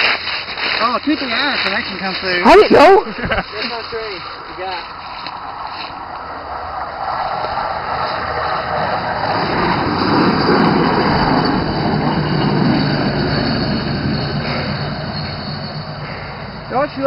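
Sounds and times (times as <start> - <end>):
rail wheels on track: 3.6 - 17.0
pickup truck engine: 4.2 - 17.0.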